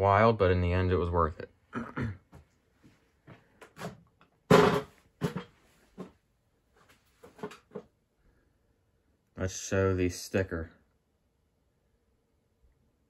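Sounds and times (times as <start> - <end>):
loud thump: 4.5 - 5.4.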